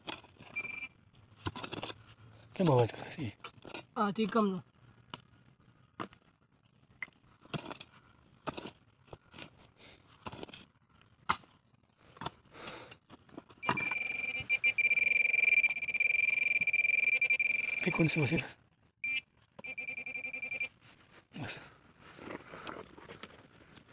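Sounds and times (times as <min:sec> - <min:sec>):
high-pitched detector tone: 0:00.5 - 0:00.9, 0:13.6 - 0:18.4, 0:19.0 - 0:20.7.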